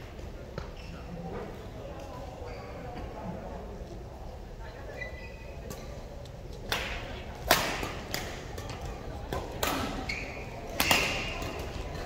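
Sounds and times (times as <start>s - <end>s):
shoe squeaks: 2.4s - 3.0s, 4.9s - 5.6s, 10.0s - 10.6s.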